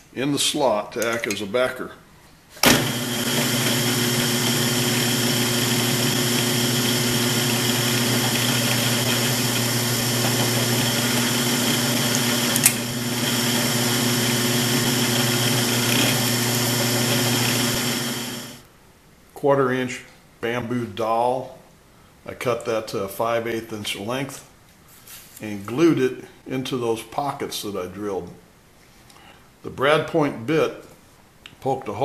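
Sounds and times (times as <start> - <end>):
drill bit boring into plywood: 2.6 - 18.6
drill press running: 2.6 - 18.6.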